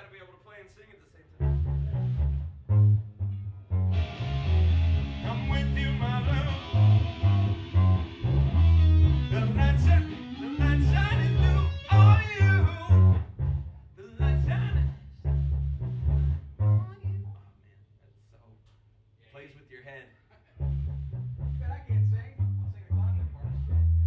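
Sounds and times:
bass guitar notes: 1.4 - 17.4, 20.6 - 24.0
band playing bluesy riff: 3.9 - 13.1.

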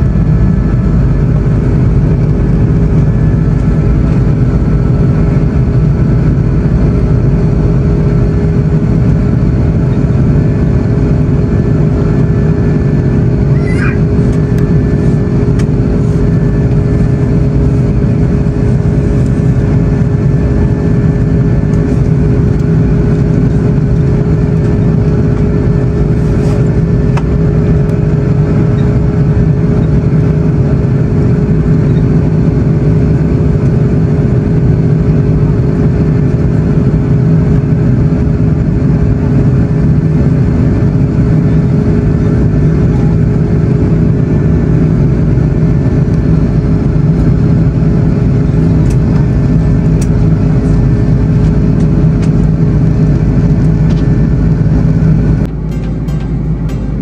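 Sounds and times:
rushing airflow: 0.0 - 31.6
constant low hum: 0.0 - 57.0
jet engines droning: 0.0 - 57.0.

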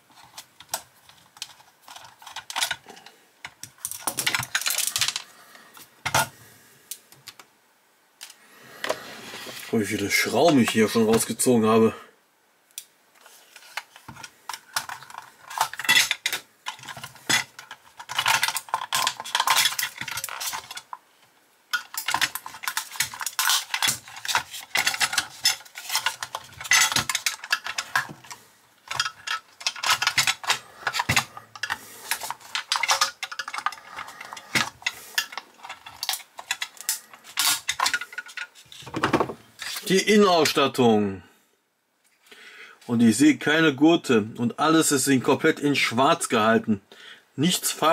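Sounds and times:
plastic parts clicking against metal: 0.2 - 5.2, 12.7 - 21.0, 21.7 - 40.6.

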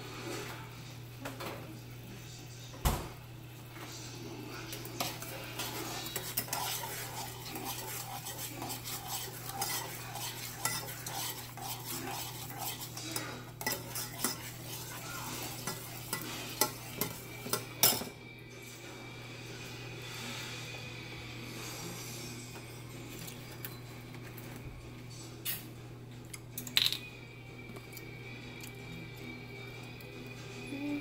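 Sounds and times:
spoon scraping a saucepan: 4.7 - 18.2.

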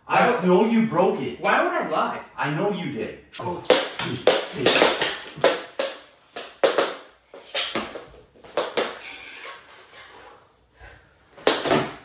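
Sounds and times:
hockey sticks clacking on puck: 3.6 - 9.6.

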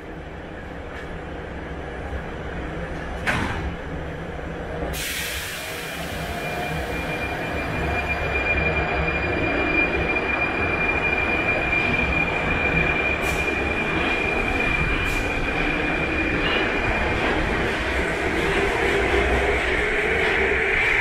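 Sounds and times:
metro train rumble: 0.0 - 21.0
high-pitched whine: 5.4 - 21.0.

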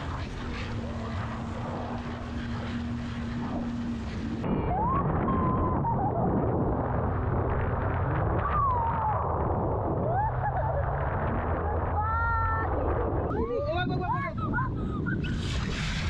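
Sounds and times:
wind and water spray rushing: 0.0 - 10.0, 13.7 - 16.0
jet ski running at speed: 0.0 - 16.0
person whooping: 4.6 - 6.3, 10.0 - 10.9.

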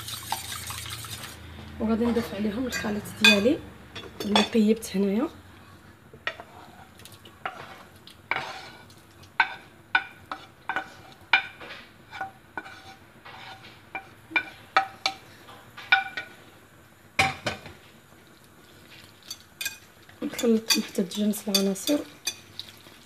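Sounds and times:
metal whisk clinking on pan: 19.3 - 22.4.

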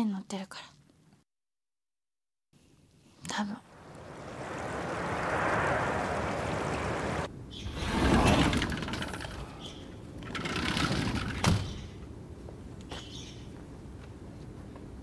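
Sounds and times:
rushing river water: 3.7 - 8.6
sliding door rumbling on track: 4.6 - 11.8.

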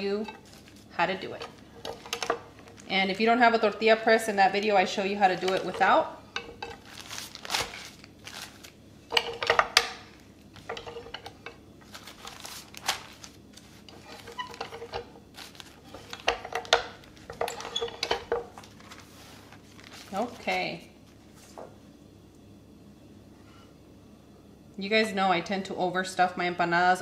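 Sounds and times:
plastic rustling: 0.0 - 3.8, 4.4 - 21.6.

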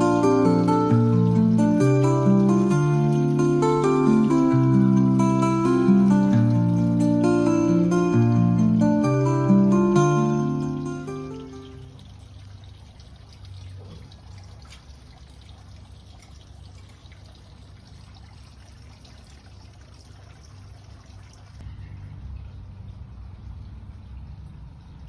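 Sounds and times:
music: 0.0 - 11.9
low outdoor rumble: 0.0 - 25.0.

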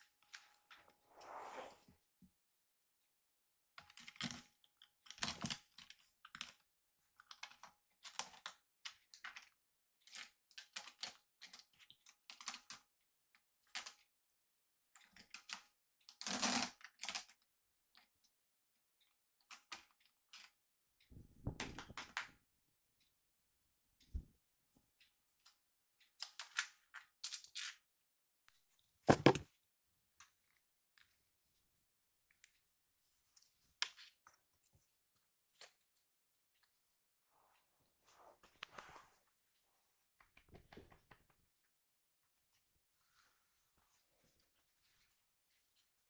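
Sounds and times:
dull thump: 29.1 - 29.4.

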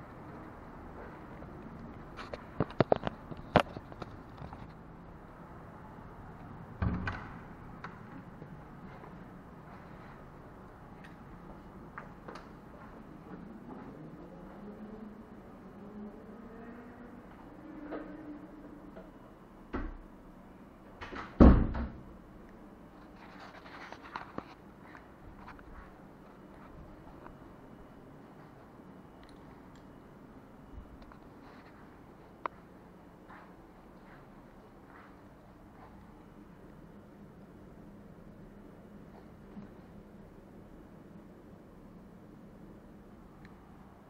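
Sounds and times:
door shutting with thump: 6.8 - 7.4, 21.0 - 22.0
door opening with dull thump: 6.8 - 7.5.

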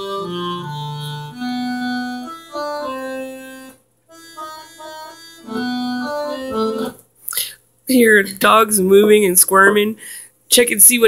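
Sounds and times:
electronic organ melody: 0.0 - 7.0.

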